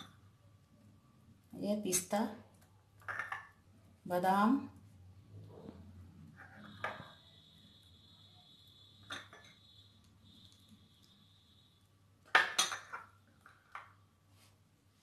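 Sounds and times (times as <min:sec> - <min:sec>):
glass bowl and plate clinking: 0:09.0 - 0:09.6, 0:12.3 - 0:13.9.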